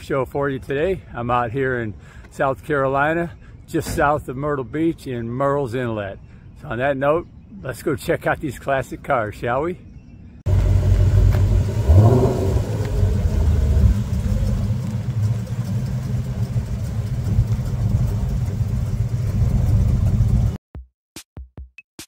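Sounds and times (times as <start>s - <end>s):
car engine revving: 10.5s - 20.6s.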